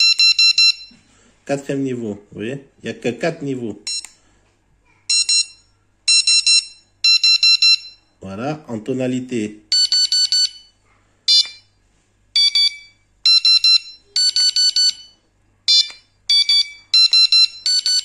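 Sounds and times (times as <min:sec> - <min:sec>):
high-pitched alarm beeps: 0:00.0 - 0:01.0, 0:05.1 - 0:08.1, 0:09.7 - 0:10.7, 0:11.3 - 0:11.7, 0:12.4 - 0:18.0.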